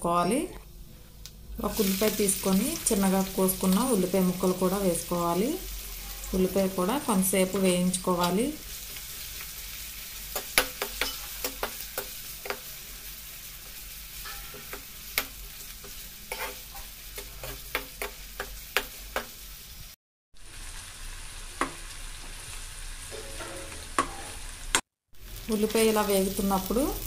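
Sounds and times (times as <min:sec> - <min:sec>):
onions sizzling in oil: 0:01.6 - 0:27.0
spatula scraping pan: 0:13.6 - 0:19.4, 0:23.1 - 0:24.6.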